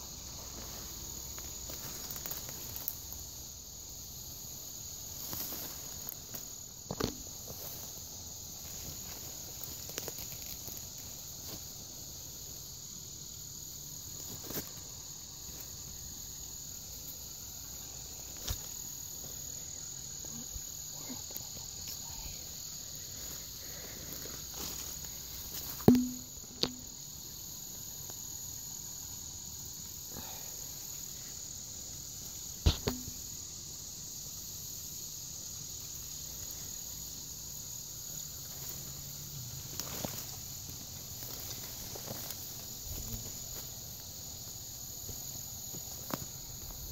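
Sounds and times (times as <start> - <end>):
insects chirping: 0.0 - 46.9
sharp knocks and clicks: 25.8 - 26.9.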